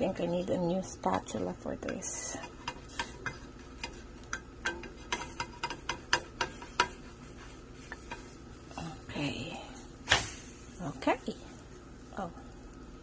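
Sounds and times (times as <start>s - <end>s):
spatula clicking on frying pan: 1.1s - 7.1s.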